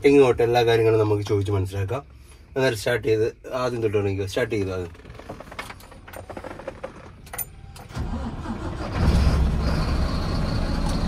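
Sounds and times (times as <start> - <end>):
diesel engine starting: 5.8 - 11.0.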